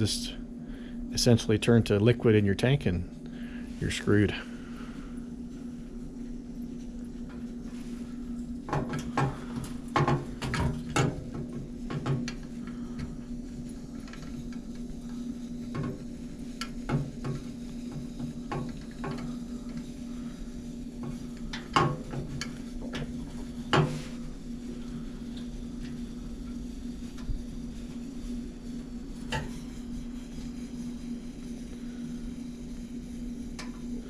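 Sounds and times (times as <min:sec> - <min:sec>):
steady low hum: 0:00.0 - 0:34.0
stove burning fuel: 0:00.0 - 0:34.0.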